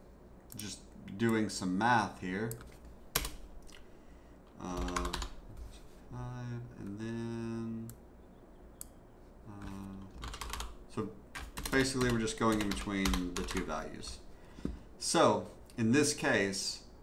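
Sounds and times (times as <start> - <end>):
computer keyboard typing: 3.2 - 3.4, 4.7 - 5.4, 9.6 - 13.8
man humming low notes: 6.1 - 8.0, 9.4 - 10.2.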